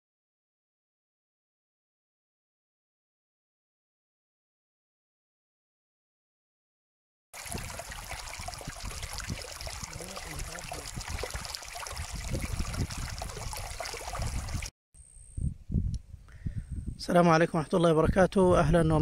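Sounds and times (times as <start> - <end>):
stream splashing over rocks: 7.4 - 14.7.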